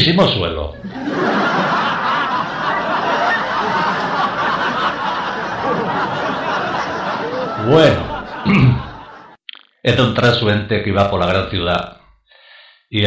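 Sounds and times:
crowd laughing: 0.8 - 9.4.

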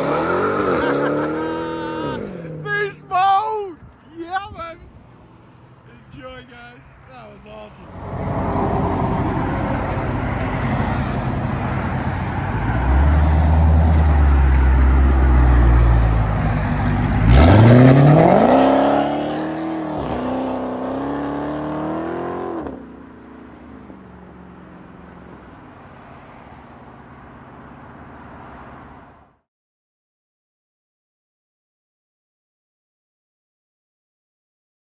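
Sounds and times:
car engine accelerating hard: 0.0 - 2.7, 8.0 - 22.8.

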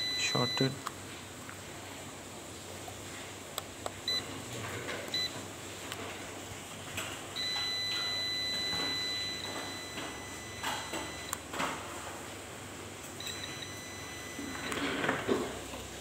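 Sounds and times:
meter beeping: 0.0 - 0.8, 4.0 - 4.3, 5.1 - 5.4, 7.4 - 11.5, 13.2 - 15.3.

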